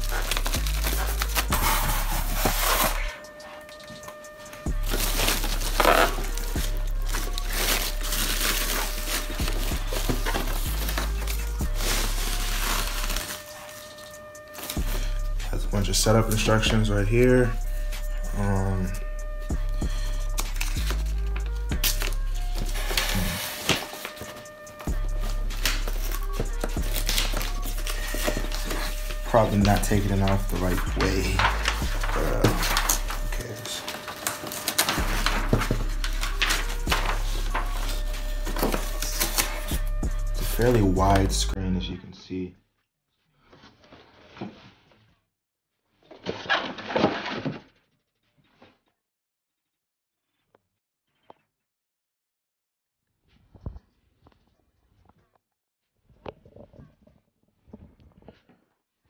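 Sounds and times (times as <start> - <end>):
plastic bag crinkling: 0.0 - 3.1, 4.8 - 14.8, 21.8 - 39.7
packaging rustling: 0.0 - 15.0, 20.3 - 39.8.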